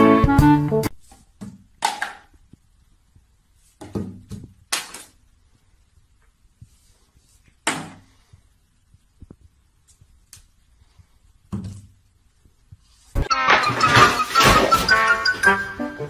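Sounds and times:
plastic bottles knocking on tiles: 0:01.4 - 0:02.3.

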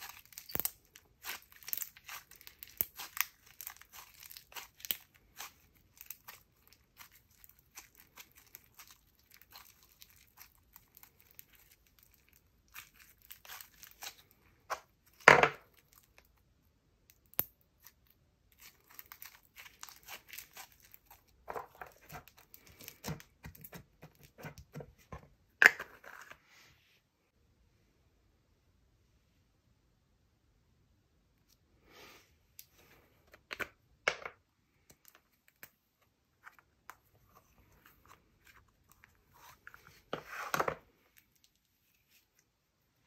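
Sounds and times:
slime crackling and popping: 0:00.0 - 0:16.3, 0:17.1 - 0:23.8.

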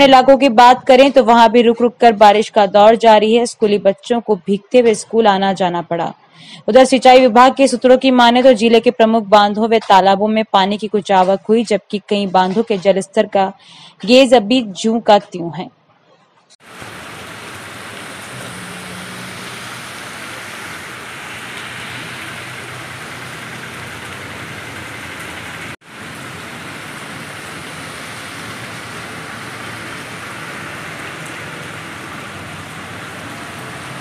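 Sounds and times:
heavy rain on a road: 0:16.6 - 0:34.0.

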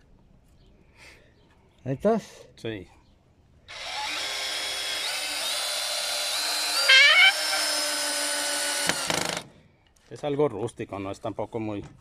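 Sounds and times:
cordless drill boring into wood: 0:03.7 - 0:09.5.

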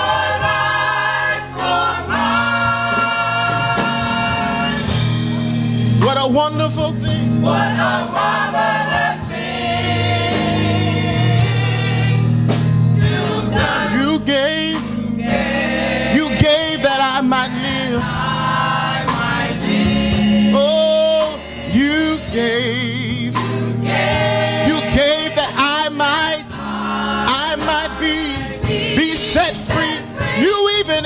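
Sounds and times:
gospel choir singing: 0:00.0 - 0:31.0
man singing lead: 0:13.6 - 0:15.0, 0:16.1 - 0:18.2, 0:20.5 - 0:23.5, 0:24.6 - 0:26.6, 0:27.2 - 0:31.0.

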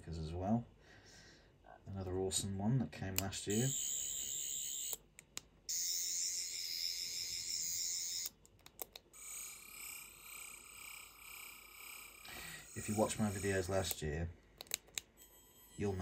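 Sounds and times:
electronic warbling whir: 0:05.7 - 0:08.3, 0:09.2 - 0:14.0.

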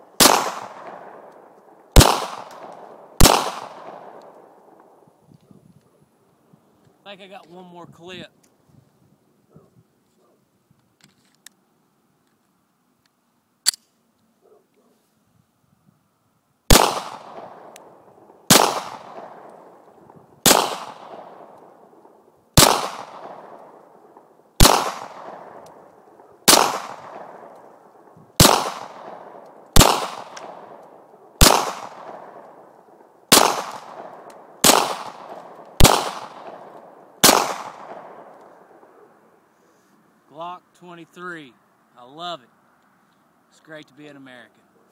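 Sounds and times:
pistol shots echoing: 0:00.1 - 0:05.0, 0:16.7 - 0:39.1
pistol loading click: 0:13.0 - 0:13.9.

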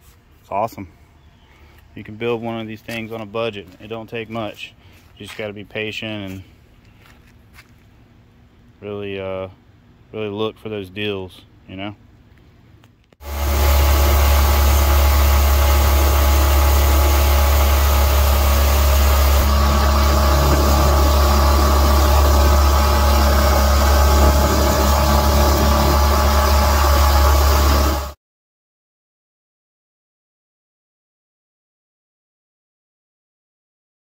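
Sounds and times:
wind: 0:00.0 - 0:26.6
mud motor running: 0:13.2 - 0:28.2
water spray rushing: 0:13.2 - 0:28.2.

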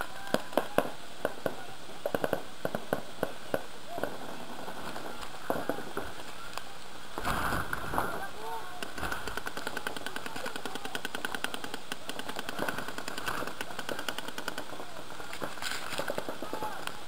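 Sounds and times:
paintball markers firing: 0:07.2 - 0:17.0
players shouting: 0:07.8 - 0:17.0.

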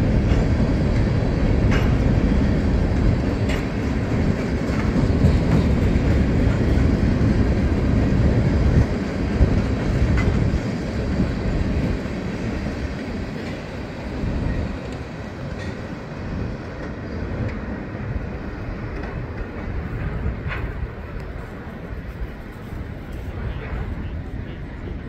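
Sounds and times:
freight train rumbling over bridge: 0:00.0 - 0:25.0
faint clicks of wheels: 0:03.0 - 0:06.2.

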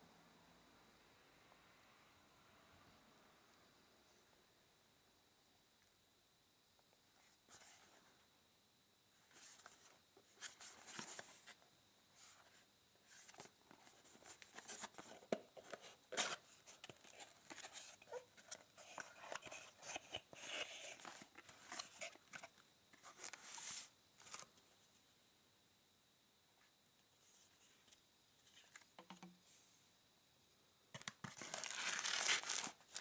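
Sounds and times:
plastic packaging crinkling: 0:31.0 - 0:33.0.

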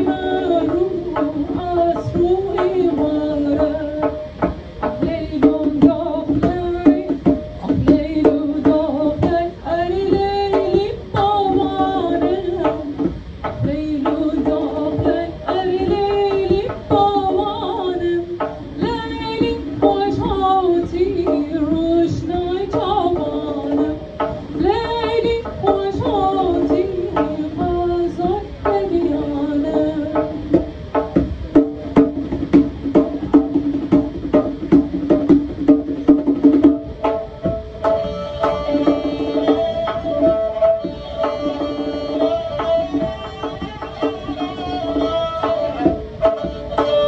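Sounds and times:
hand drum strokes: 0:00.0 - 0:47.0
bowed fiddle melody: 0:36.9 - 0:47.0.

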